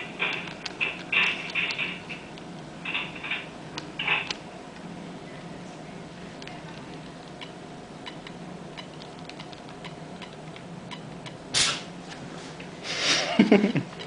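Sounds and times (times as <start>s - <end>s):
short hiss: 11.5s - 11.9s.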